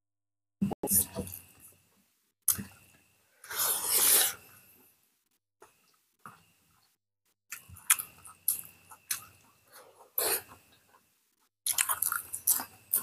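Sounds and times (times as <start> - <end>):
mouth clicks and chewing: 7.5 - 9.6, 11.6 - 13.0.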